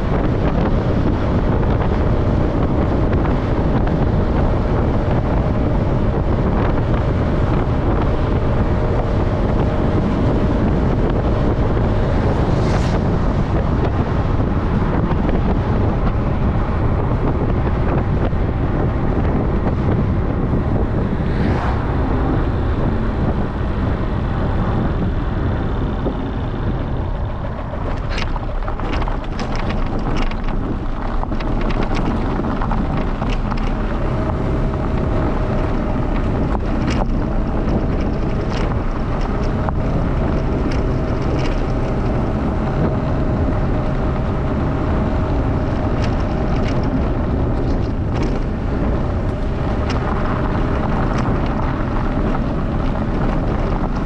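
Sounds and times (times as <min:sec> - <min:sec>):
road rumble: 0:00.0 - 0:54.0
wind buffeting microphone: 0:00.0 - 0:54.0
tyres crackling on gravel: 0:25.9 - 0:54.0.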